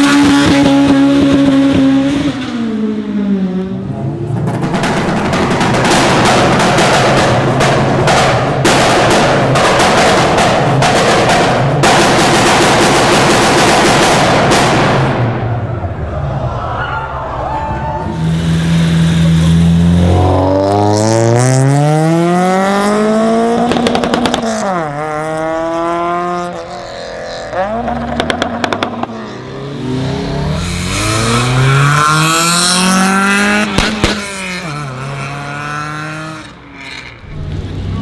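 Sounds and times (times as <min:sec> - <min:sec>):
cars accelerating hard: 0:00.0 - 0:15.7, 0:18.0 - 0:38.0
exhaust crackles and pops: 0:23.6 - 0:24.9, 0:27.8 - 0:29.1.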